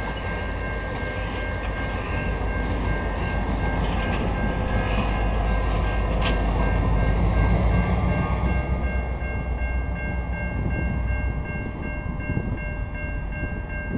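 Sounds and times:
diesel locomotive rumbling past: 0.0 - 13.9.

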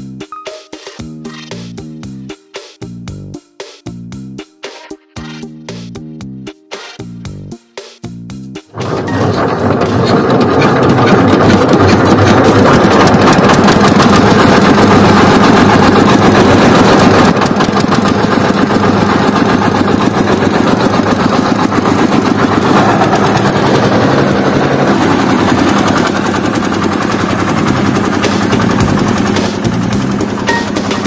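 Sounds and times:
small engine running: 8.7 - 31.0.

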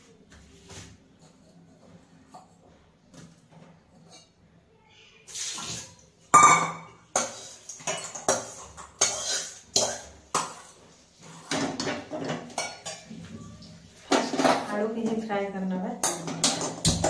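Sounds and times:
metal spatula scraping a wok: 7.1 - 13.1.

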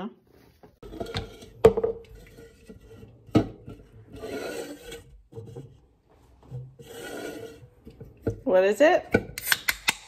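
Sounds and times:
can scraping across counter: 0.8 - 5.8, 6.4 - 8.0.

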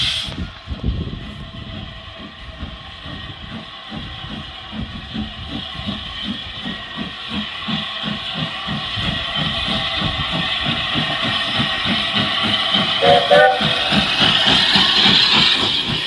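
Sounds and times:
steam hissing: 0.0 - 16.0
steam locomotive exhaust chuffs: 0.0 - 16.0.

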